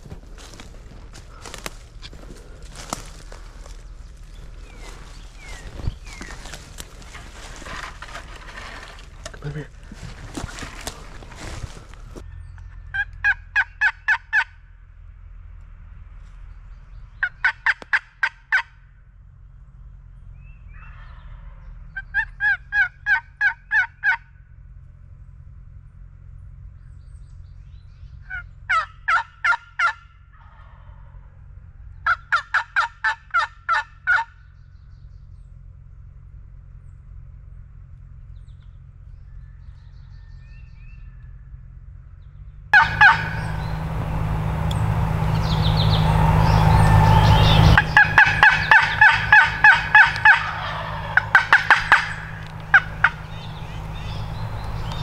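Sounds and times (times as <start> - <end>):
turkey yelping: 12.9 - 14.5, 17.2 - 18.7, 22.0 - 24.2, 28.3 - 31.1, 32.0 - 34.3, 42.8 - 55.0.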